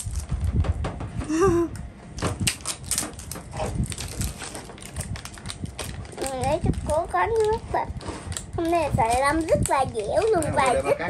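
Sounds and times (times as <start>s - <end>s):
child's voice: 6.1s - 11.0s.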